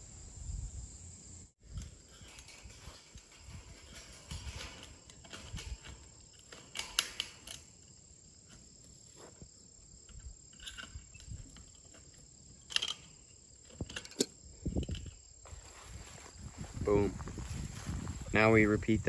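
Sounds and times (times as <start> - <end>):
wire clicking and scraping on metal: 1.6 - 15.2.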